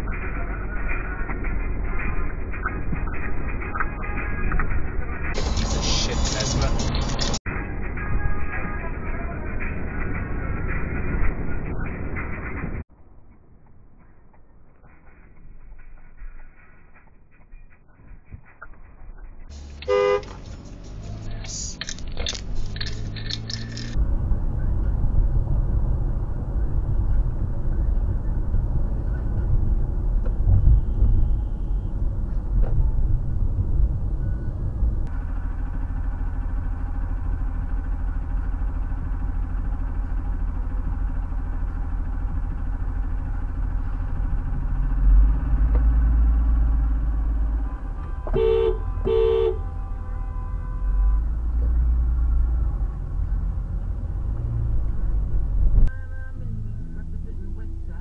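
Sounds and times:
car road and engine rumble: 0.0s - 58.0s
car horn honks: 19.8s - 20.4s, 47.6s - 51.4s.

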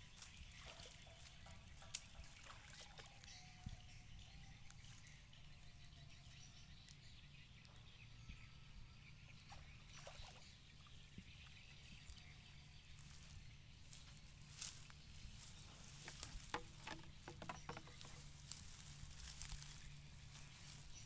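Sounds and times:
faint rustles and ticks: 0.0s - 8.0s, 10.8s - 21.0s.

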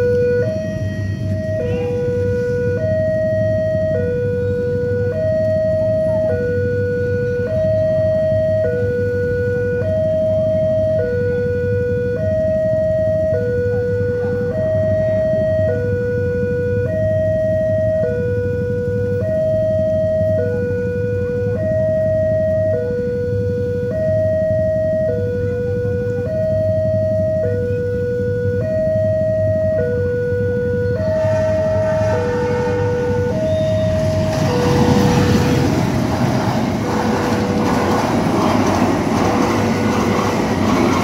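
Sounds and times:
two-tone crossing alarm: 0.0s - 41.0s.

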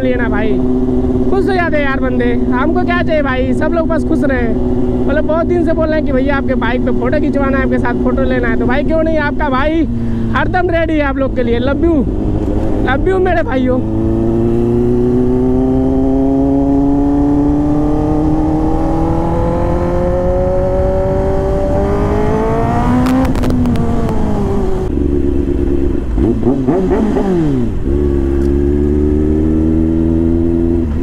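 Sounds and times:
motorcycle engine revving: 0.0s - 31.0s
exhaust cracks: 22.7s - 28.8s.

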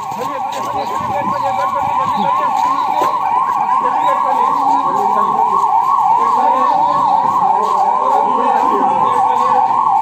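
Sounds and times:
ambulance siren yelping: 0.0s - 10.0s.

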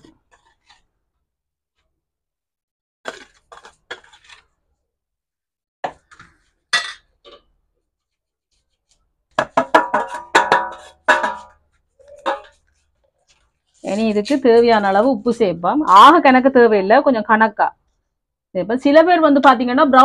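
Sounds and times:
metal cup knocking on steel basin: 9.4s - 12.5s.

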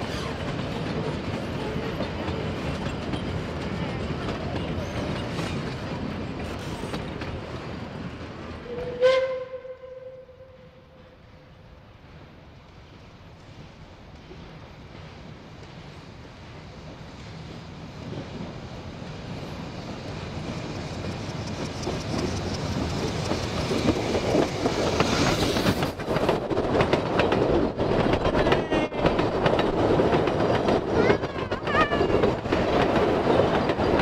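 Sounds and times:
carriages clattering over rail joints: 0.0s - 7.5s
steam train approaching: 0.0s - 34.0s.

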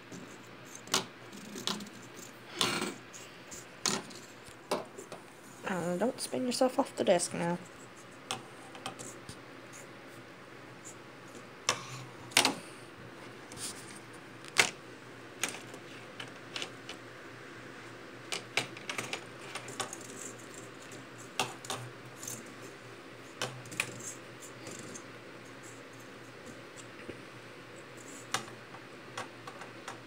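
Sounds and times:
fidget spinner clattering on desk: 3.8s - 5.2s, 18.3s - 22.5s.

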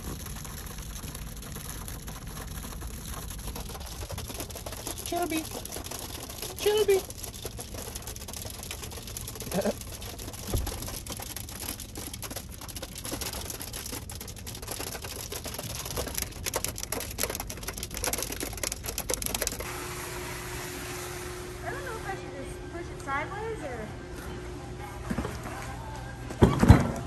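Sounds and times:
rain pattering on car windshield: 0.0s - 19.7s.

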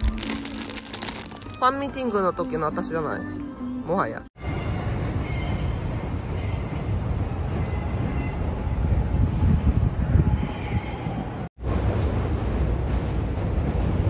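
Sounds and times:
train rumbling: 4.4s - 14.0s.

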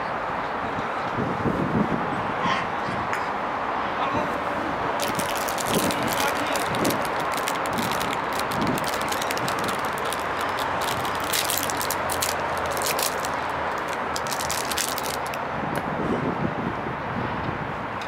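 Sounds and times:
small crackles and clicks: 5.0s - 15.4s.

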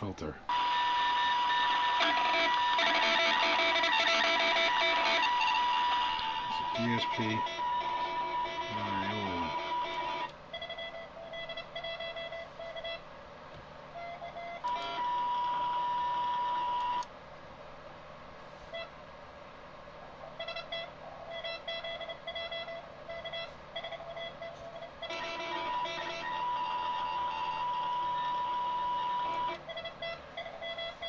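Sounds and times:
steady radio hiss: 0.0s - 31.0s
high steady tone: 0.5s - 13.0s, 20.4s - 31.0s
morse code beeps: 0.5s - 13.0s, 14.0s - 17.0s, 20.4s - 31.0s.

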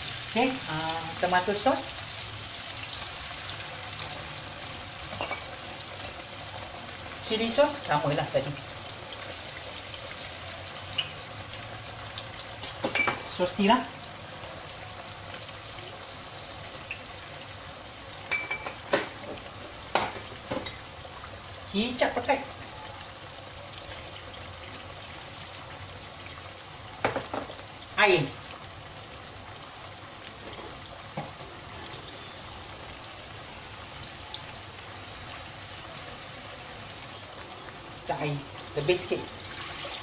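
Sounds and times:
onions sizzling in oil: 0.0s - 40.0s.

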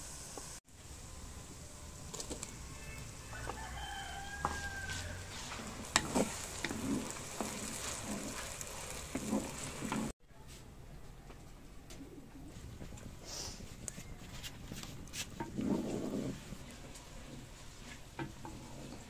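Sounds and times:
vegetables sizzling in oil: 0.0s - 10.2s
rooster crowing: 2.7s - 5.5s
wooden spatula scraping pot: 3.4s - 10.2s, 14.6s - 19.0s.

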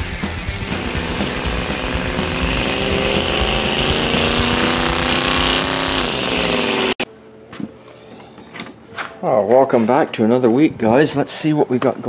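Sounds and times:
tires screeching: 0.0s - 7.0s
truck engine at high revs: 0.0s - 7.0s.

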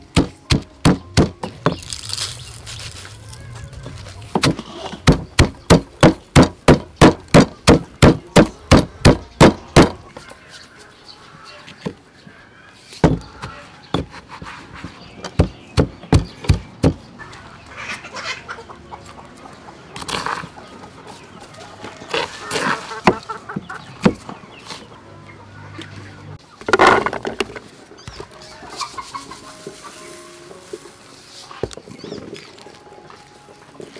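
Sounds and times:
pestle pounding in stone mortar: 0.0s - 1.9s, 4.4s - 10.0s, 15.4s - 17.0s
chickens clucking: 0.6s - 33.9s.

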